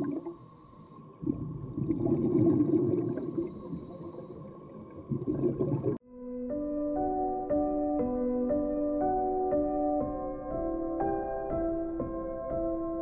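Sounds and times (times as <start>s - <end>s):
exhaled air bubbling underwater: 0.0s - 6.0s.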